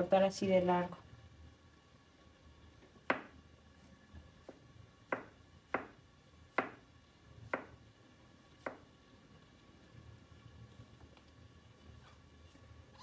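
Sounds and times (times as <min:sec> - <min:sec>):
knife tapping cutting board: 0:04.4 - 0:06.0, 0:06.6 - 0:06.8, 0:07.5 - 0:07.8.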